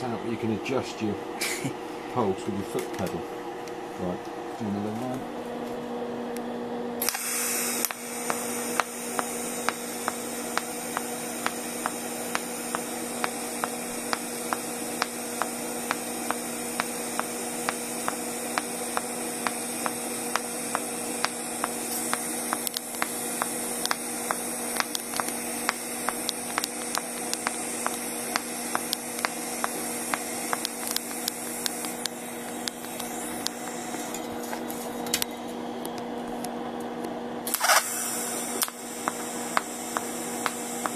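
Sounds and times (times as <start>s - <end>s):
welding arc hum and hiss: 0.0s - 40.9s
regular pulsing tick: 7.8s - 34.2s, 38.6s - 40.9s.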